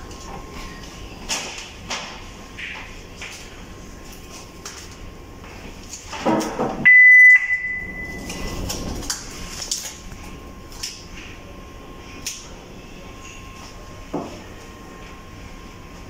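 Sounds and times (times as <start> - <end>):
high-pitched electronic beep: 6.9 - 8.2.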